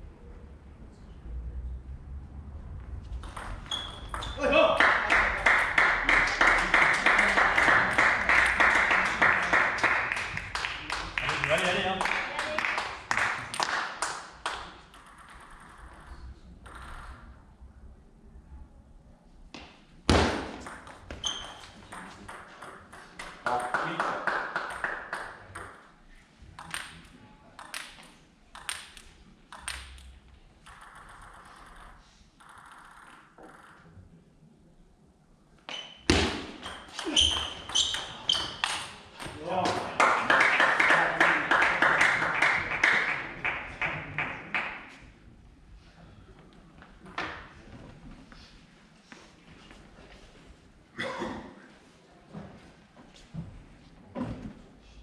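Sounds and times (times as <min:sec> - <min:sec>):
spectators clapping in rhythm: 0:04.7 - 0:14.8, 0:23.4 - 0:25.5, 0:39.6 - 0:45.0
table tennis ball clicking: 0:28.6 - 0:33.8.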